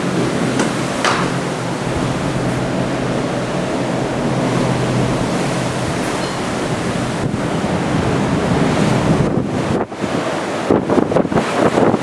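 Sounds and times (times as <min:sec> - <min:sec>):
rough sea washing past ship: 0:00.0 - 0:12.0
wind on microphone: 0:00.0 - 0:12.0.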